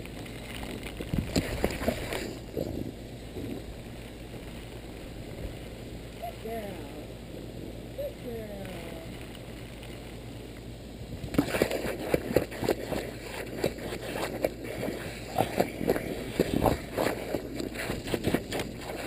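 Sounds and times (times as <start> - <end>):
water splashing: 0.0 - 4.7, 11.2 - 19.0.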